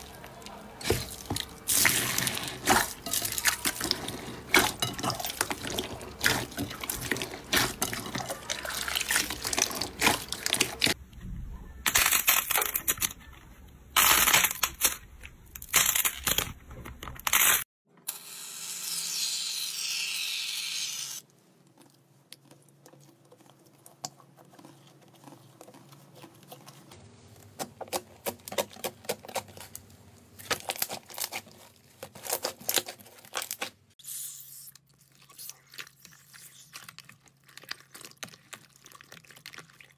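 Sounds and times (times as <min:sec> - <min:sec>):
slime squelching and crackling: 0:00.0 - 0:11.0, 0:21.2 - 0:39.9.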